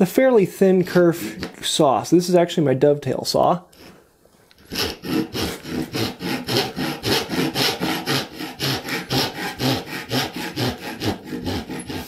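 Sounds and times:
handsaw cutting wood: 4.6s - 12.0s.

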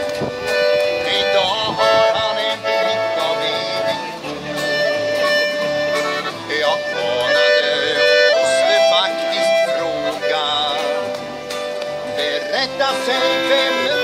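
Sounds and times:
acoustic guitar strumming: 0.0s - 14.0s
button accordion playing: 0.0s - 14.0s
people singing: 6.3s - 11.1s, 12.1s - 14.0s.

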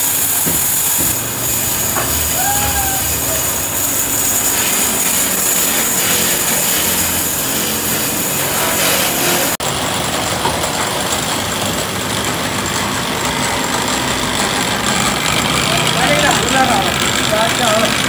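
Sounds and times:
hiss: 0.0s - 9.6s
electric motors and lathes humming: 0.0s - 18.0s.

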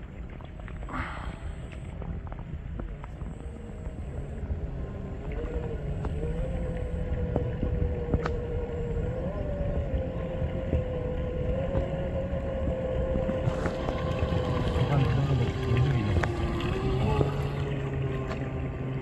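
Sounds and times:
low rumble: 0.0s - 19.0s
model boat motor whine: 0.0s - 19.0s.

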